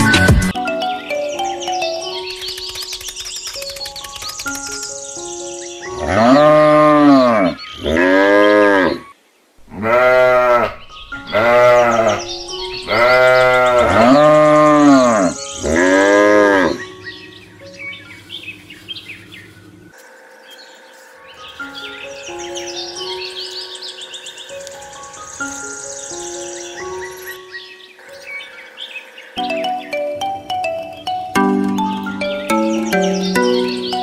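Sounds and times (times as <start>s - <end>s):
light background music: 0.0s - 8.7s, 9.8s - 19.1s, 20.1s - 34.0s
cow mooing: 6.0s - 9.1s, 9.7s - 12.2s, 12.8s - 16.9s.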